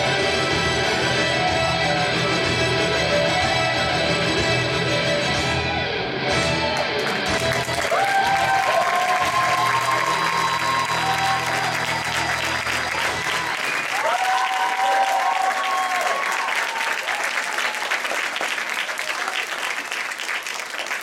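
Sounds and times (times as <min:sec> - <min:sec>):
music: 0:00.0 - 0:14.1
audience applauding: 0:06.7 - 0:21.0.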